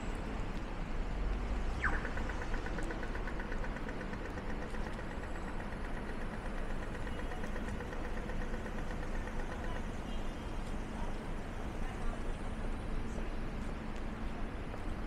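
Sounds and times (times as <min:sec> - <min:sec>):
low rumble of traffic: 0:00.0 - 0:15.0.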